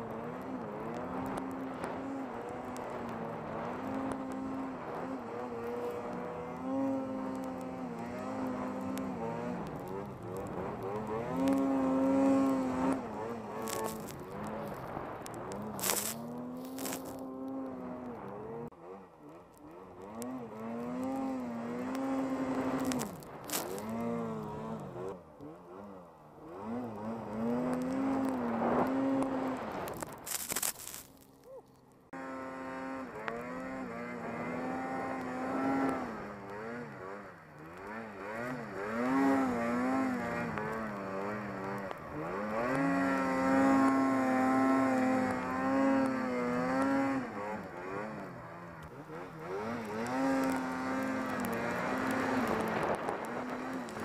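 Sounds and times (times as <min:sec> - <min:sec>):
snowmobile engine revving: 0:00.0 - 0:31.2, 0:32.1 - 0:54.0.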